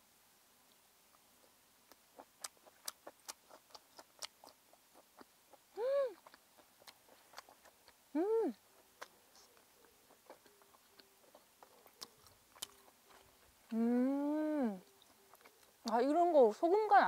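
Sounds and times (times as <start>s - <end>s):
person chewing: 0.7s - 16.2s
wet mouth clicks: 1.9s - 16.1s
person humming mmm: 5.7s - 6.4s, 8.1s - 9.5s, 13.6s - 15.5s.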